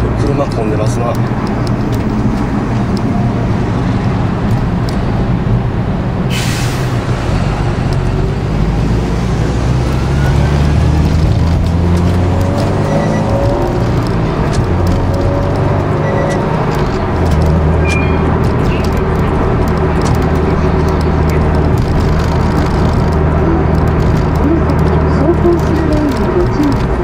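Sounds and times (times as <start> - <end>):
car engine revving: 0.0 - 27.0
short sharp hiss: 6.3 - 7.1.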